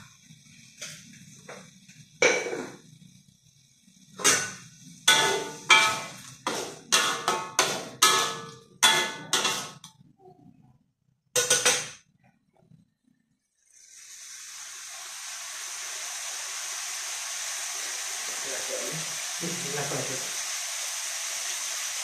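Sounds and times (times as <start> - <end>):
metal utensil clanking against wok: 4.2 - 9.9, 11.4 - 12.0.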